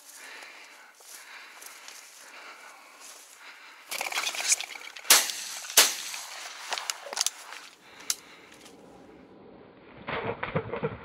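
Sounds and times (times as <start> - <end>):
shotgun shots: 5.1 - 6.4.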